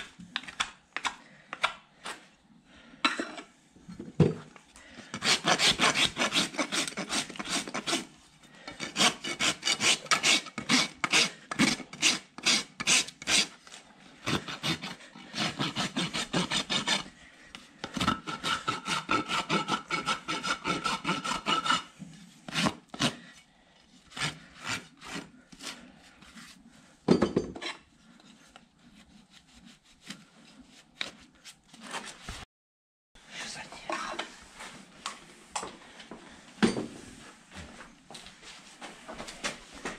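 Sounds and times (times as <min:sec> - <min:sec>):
hoof rasp scraping: 0:17.9 - 0:23.3.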